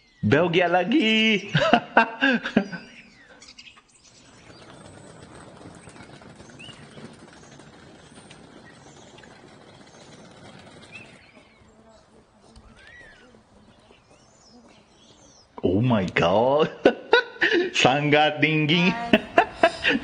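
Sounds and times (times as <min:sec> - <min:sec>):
faint bird chirps: 0:00.0 - 0:00.3, 0:02.5 - 0:15.6
steady outdoor rush: 0:00.0 - 0:20.0.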